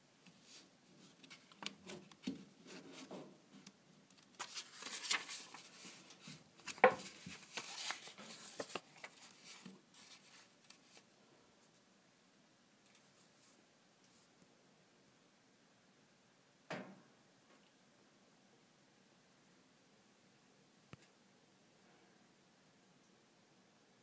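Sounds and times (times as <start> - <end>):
page turning rustle: 0.4 - 11.1
hand rubbing paper pages: 4.2 - 11.0.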